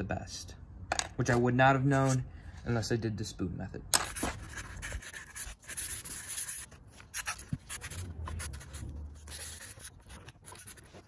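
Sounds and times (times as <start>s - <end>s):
hands scratching and rubbing: 4.7s - 11.0s.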